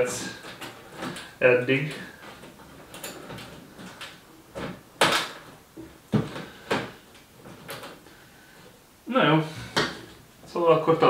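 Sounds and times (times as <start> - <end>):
objects knocking and scraping: 0.2 - 8.1.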